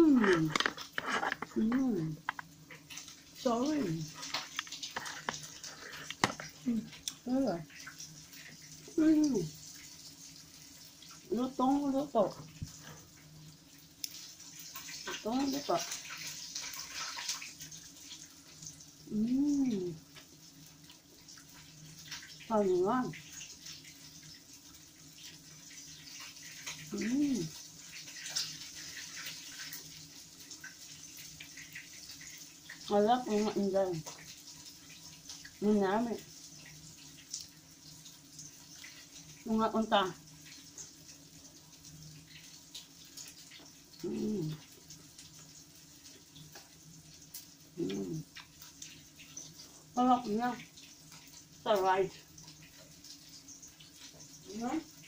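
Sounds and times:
fried chicken crackling: 0:00.0 - 0:11.3, 0:12.5 - 0:22.5, 0:23.2 - 0:35.6
low steady background hum: 0:00.0 - 0:55.0
person humming: 0:44.0 - 0:44.6, 0:47.8 - 0:48.2.

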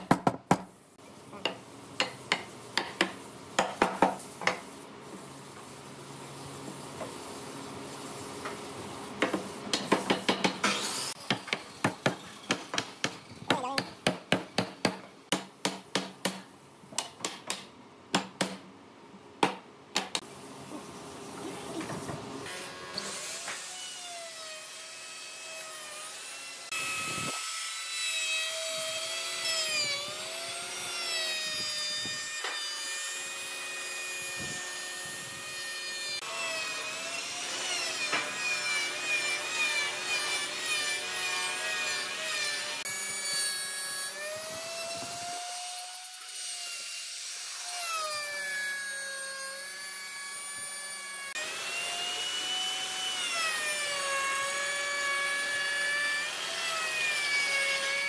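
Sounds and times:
router whining cutting wood: 0:22.5 - 0:58.0.

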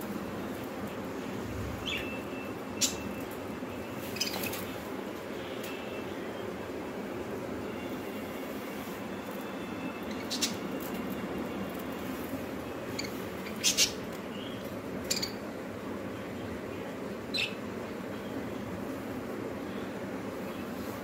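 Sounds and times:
low background hum: 0:00.0 - 0:21.0
budgerigars chirping: 0:12.9 - 0:14.0.

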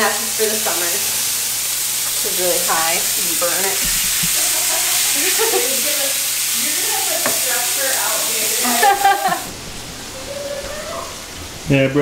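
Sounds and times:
meat sizzling in frying pan: 0:00.0 - 0:09.8
spatula stirring: 0:02.0 - 0:09.4.

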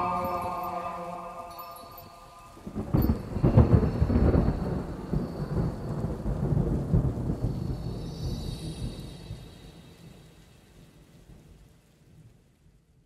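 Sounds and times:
thunder crack and rumble: 0:01.8 - 0:11.6.

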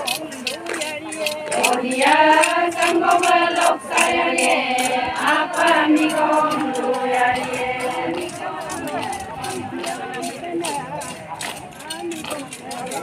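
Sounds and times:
women singing a chant in unison: 0:01.2 - 0:10.8.

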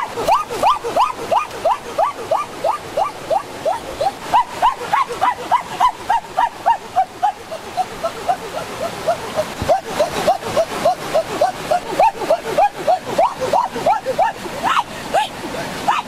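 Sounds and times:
hen squawking: 0:00.0 - 0:16.0.

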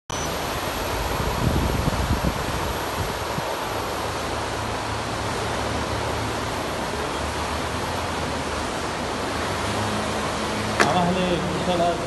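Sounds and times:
water rushing and splashing: 0:00.1 - 0:12.0.

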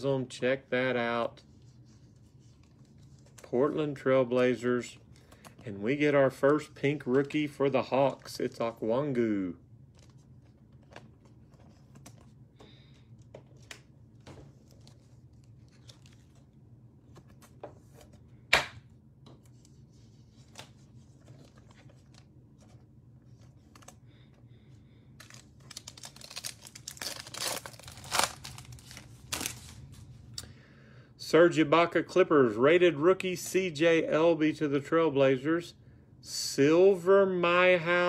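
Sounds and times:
faint clicks of card handling: 0:20.4 - 0:24.0
foil pack tearing and crinkling: 0:25.2 - 0:29.7.

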